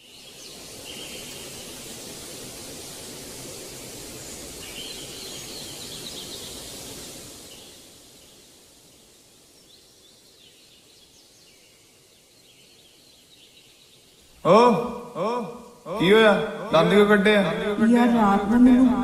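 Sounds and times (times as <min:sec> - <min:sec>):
faint bird chirps: 0:00.0 - 0:01.9, 0:03.8 - 0:16.8
steady outdoor hiss: 0:00.0 - 0:19.0.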